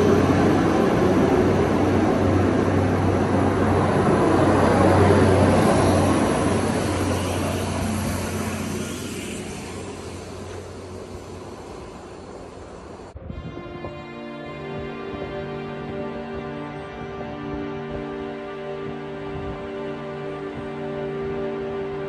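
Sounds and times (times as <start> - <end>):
large vehicle passing: 0.0 - 13.2.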